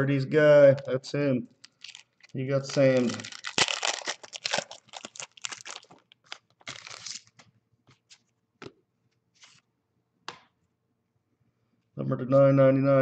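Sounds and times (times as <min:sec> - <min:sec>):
foil wrapper crinkling: 0:01.6 - 0:07.5
cards rustling and tapping: 0:01.8 - 0:08.8.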